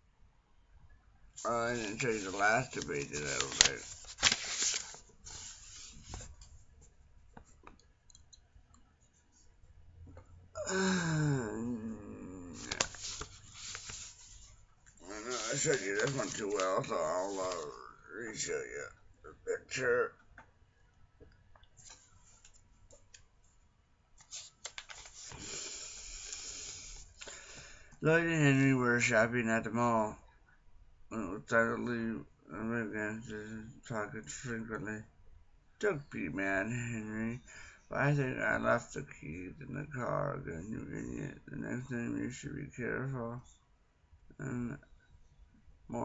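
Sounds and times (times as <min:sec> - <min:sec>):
book handling clicks and rustling: 0:01.8 - 0:06.5, 0:12.6 - 0:14.5, 0:15.2 - 0:17.7, 0:24.2 - 0:25.4
man's falling vocal sound: 0:10.6 - 0:12.9.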